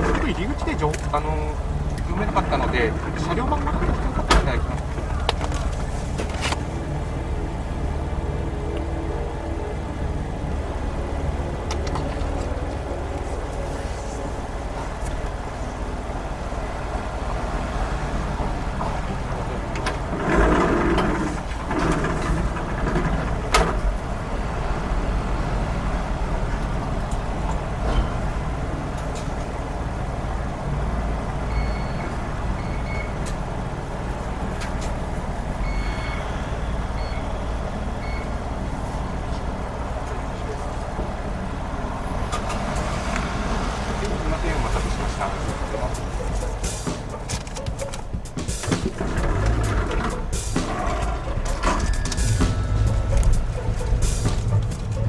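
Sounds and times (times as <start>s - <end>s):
car engine idling: 0.0s - 55.0s
high electronic beeps: 35.6s - 37.4s.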